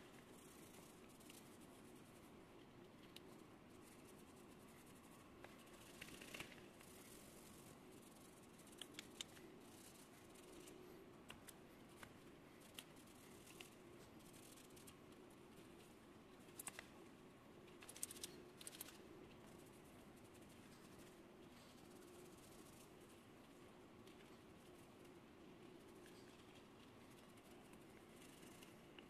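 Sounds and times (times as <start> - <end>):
faint low hum: 0.0 - 29.0
small clicks: 8.6 - 9.5, 16.5 - 16.9, 17.7 - 19.0.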